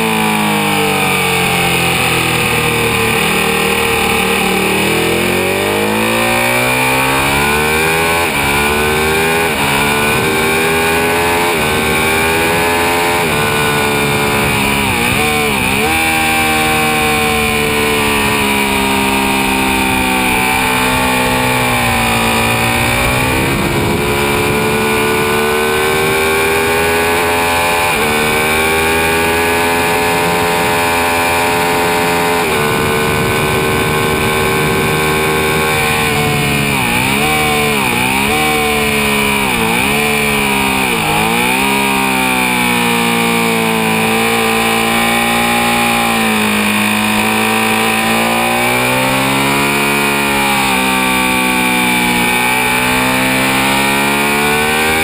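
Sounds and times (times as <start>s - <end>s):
motorcycle engine revving hard: 0.0s - 55.0s
wind rush: 9.4s - 15.9s, 17.0s - 27.1s, 32.2s - 37.8s.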